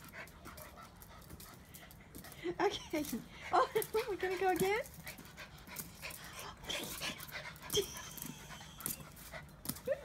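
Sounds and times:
dogs panting and whimpering: 0.0 - 10.0.

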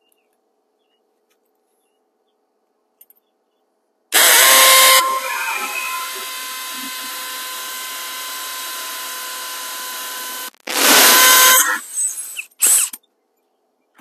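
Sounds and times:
cordless drill drilling into wall: 4.2 - 13.0.

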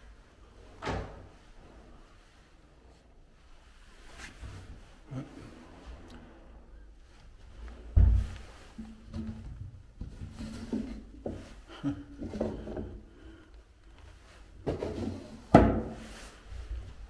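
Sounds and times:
knocks and scrapes: 7.6 - 13.1, 14.2 - 17.0.

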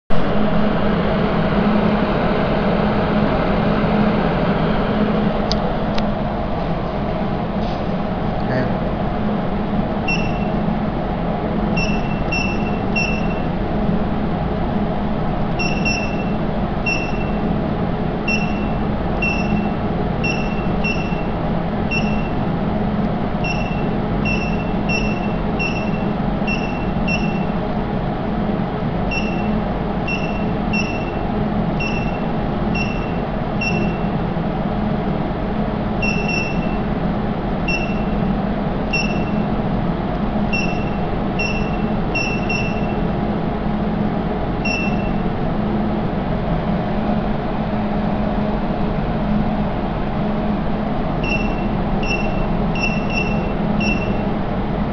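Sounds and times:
steady hum: 0.1 - 54.9
short high keypad beeps: 10.1 - 10.6, 11.8 - 13.5, 15.6 - 17.4, 18.3 - 22.4, 23.4 - 27.6, 29.1 - 34.1, 36.0 - 36.9, 37.7 - 38.2, 38.9 - 39.5, 40.5 - 43.0, 44.6 - 45.2, 51.2 - 54.3.

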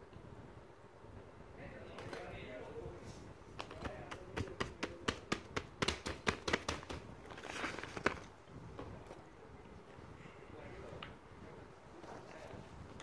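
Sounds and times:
handling rustle: 6.5 - 9.3, 11.9 - 13.0.

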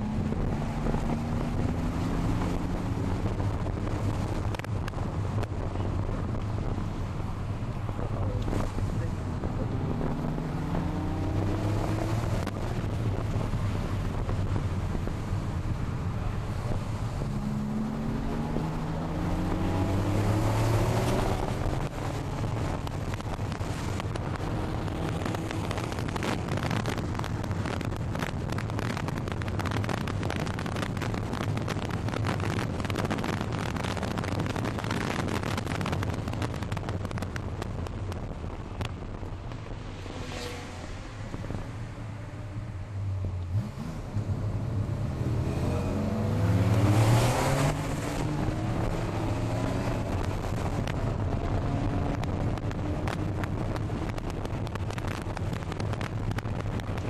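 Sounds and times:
car engine accelerating: 0.0 - 57.0
wind buffeting microphone: 0.0 - 57.0
rough engine crackling: 7.4 - 41.7, 43.2 - 57.0.

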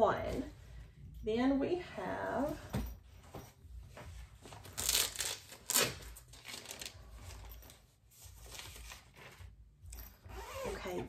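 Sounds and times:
crinkling and rustling: 2.3 - 11.0.

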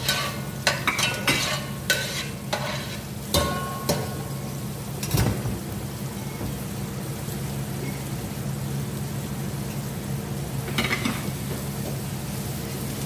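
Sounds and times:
cooking utensil clatter: 0.0 - 4.4, 10.7 - 11.4
onion sizzling in hot oil: 0.0 - 13.0.

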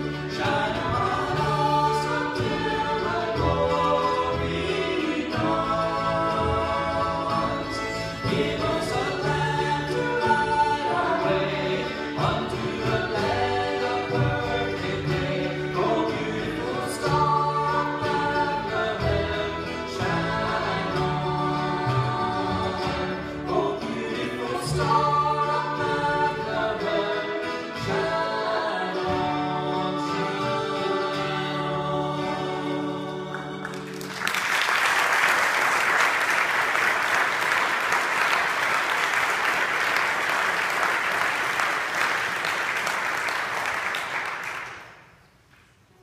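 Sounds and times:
acoustic gospel band with singers: 0.0 - 46.0
congregation applauding: 33.3 - 45.4.

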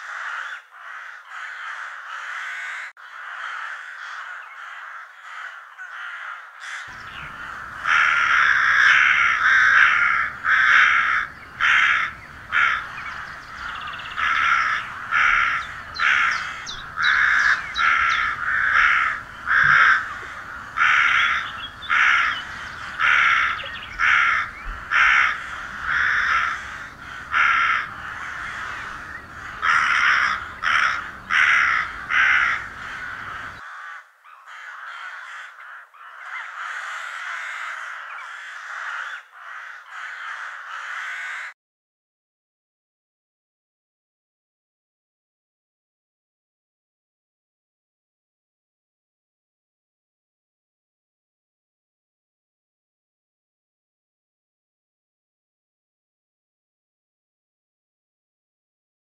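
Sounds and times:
crows cawing: 0.0 - 41.6.

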